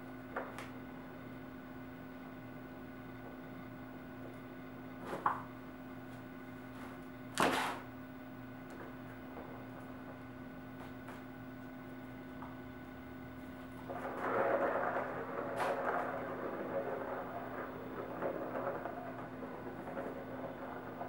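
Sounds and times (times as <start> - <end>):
steady low hum: 0.0 - 21.0
ball rolling on plastic track: 13.7 - 21.0.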